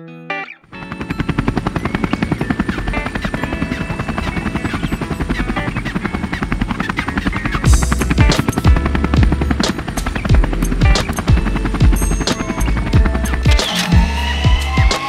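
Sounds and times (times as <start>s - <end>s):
drone propellers buzzing: 0.7s - 15.0s.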